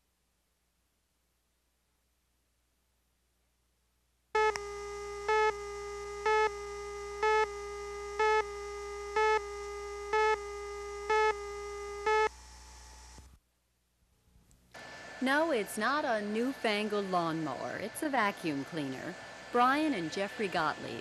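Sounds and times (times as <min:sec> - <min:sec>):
steady electronic tone: 0:04.4 - 0:13.2.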